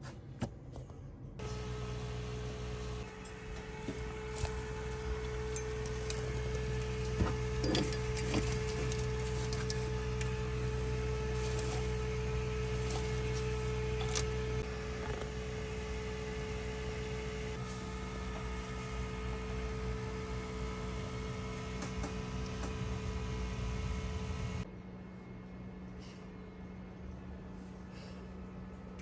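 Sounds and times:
electrical hum: 1.3s - 29.0s
dried flowers rustling and clicking: 11.2s - 14.4s.

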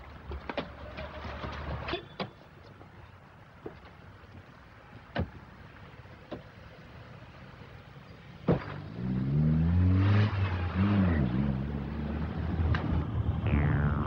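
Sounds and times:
car engine revving: 8.8s - 14.0s.

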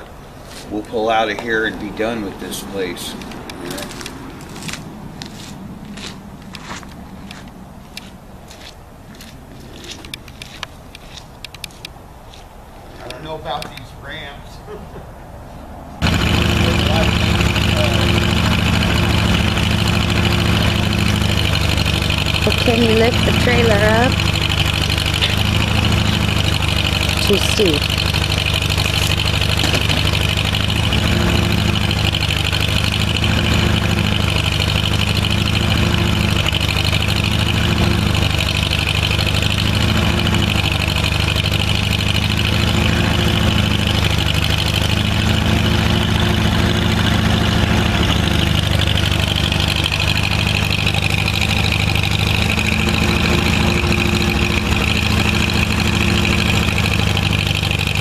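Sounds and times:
truck engine idling: 16.0s - 58.0s.

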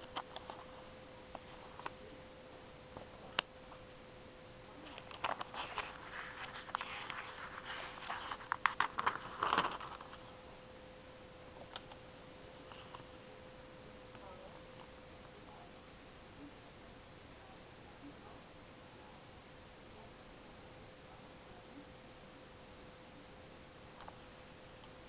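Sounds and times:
faint steady hum: 0.0s - 25.0s
paper crinkling and rustling: 4.9s - 10.2s.

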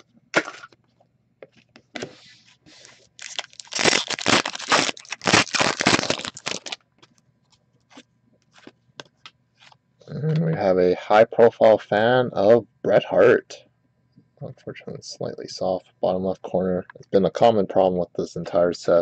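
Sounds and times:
foil wrapper crinkling and tearing: 2.8s - 7.1s.

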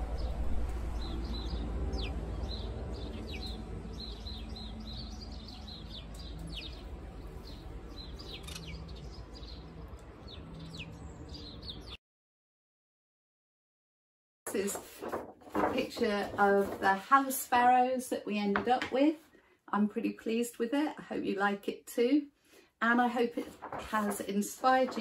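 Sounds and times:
steady low rumble: 0.0s - 5.6s
sparrows chirping: 0.1s - 12.0s.

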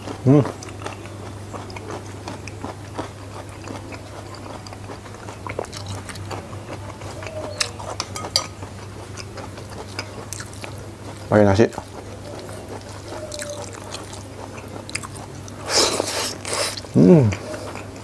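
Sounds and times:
chewing and mouth sounds: 0.0s - 18.0s
steady low hum: 0.0s - 18.0s
metal spoon clinking in bowl: 8.0s - 8.6s.

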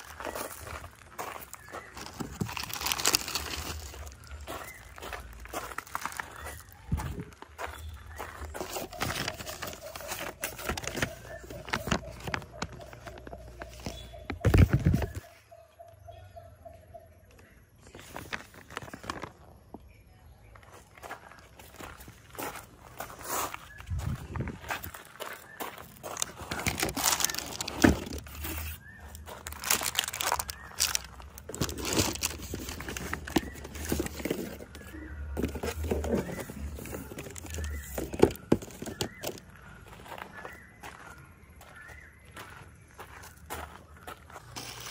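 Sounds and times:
paper rustling and crackling: 0.0s - 4.5s, 8.4s - 15.2s, 17.9s - 19.6s, 26.0s - 39.4s
plastic wrapping crinkling: 0.0s - 6.8s, 8.6s - 15.2s, 26.2s - 39.4s
footsteps on gravel: 0.0s - 15.4s, 20.5s - 44.9s.

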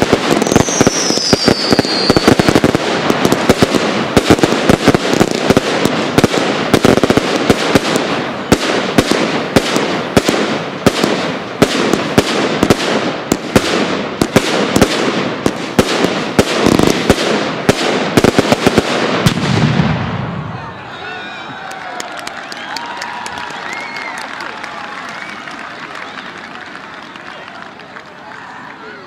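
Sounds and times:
firework shells bursting with bangs: 0.0s - 20.2s
fireworks crackling: 0.0s - 20.7s, 21.5s - 29.0s.

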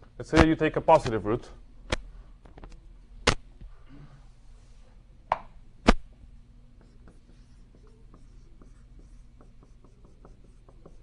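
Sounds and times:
writing strokes on board: 6.8s - 11.0s.

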